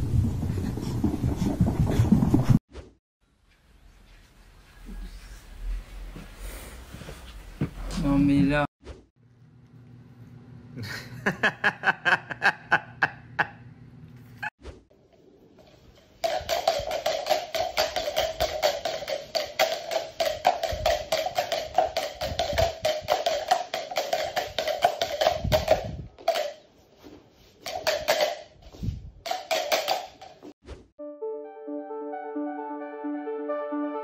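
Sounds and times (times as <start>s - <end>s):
music with clicking percussive beat: 16.2s - 26.5s, 29.3s - 30.5s.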